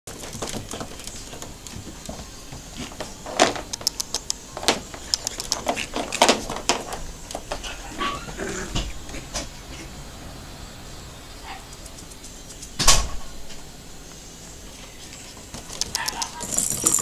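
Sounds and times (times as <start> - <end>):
puppy claws tapping on plastic: 0.1 - 7.6.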